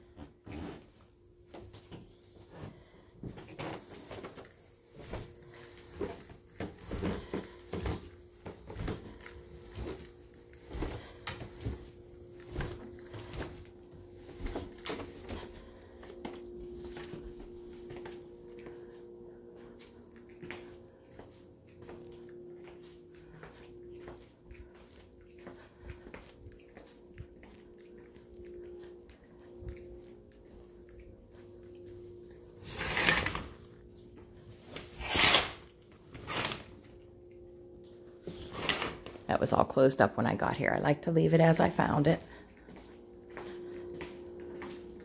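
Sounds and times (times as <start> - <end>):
steady hum: 0.0 - 45.0
footsteps on stairs and tiles: 42.6 - 45.0.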